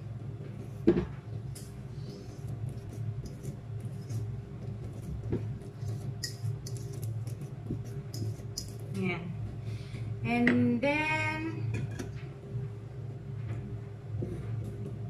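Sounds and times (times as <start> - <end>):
steady low hum: 0.0 - 15.0
fork scraping metal bowl: 2.4 - 8.8.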